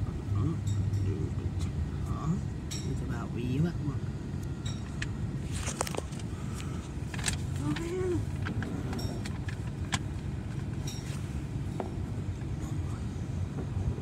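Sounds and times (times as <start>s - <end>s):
car cabin rumble: 3.8s - 14.0s.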